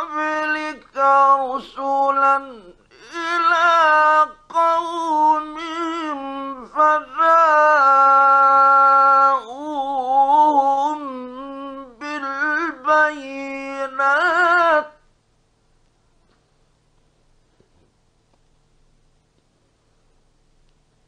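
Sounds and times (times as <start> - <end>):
man chanting melodically: 0.0 - 15.0.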